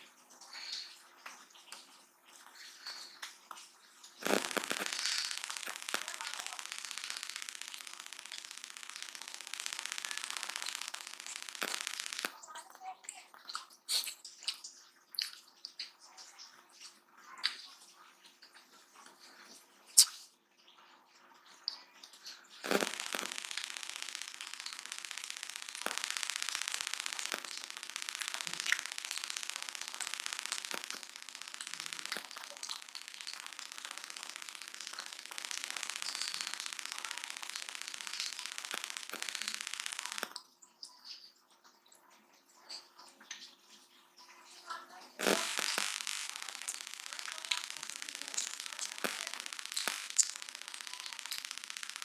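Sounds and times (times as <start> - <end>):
loud rapid crackling: 4.2 - 12.5, 22.6 - 40.4, 45.2 - 52.0.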